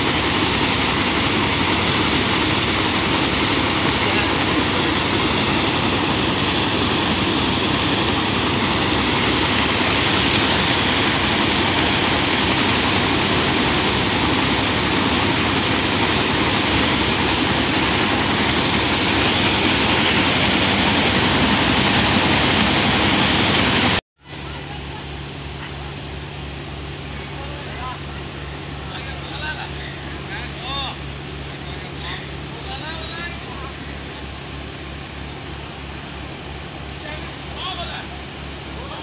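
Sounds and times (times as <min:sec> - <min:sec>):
thresher rushing noise: 0:00.0 - 0:24.6
pulsing machine hum: 0:00.0 - 0:36.7.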